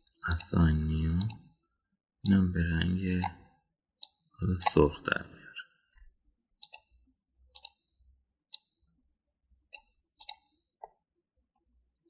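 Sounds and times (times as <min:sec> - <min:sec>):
computer mouse clicking: 0:00.1 - 0:00.6, 0:01.2 - 0:01.5, 0:03.2 - 0:03.4, 0:04.0 - 0:04.8, 0:06.6 - 0:08.8, 0:09.7 - 0:10.7.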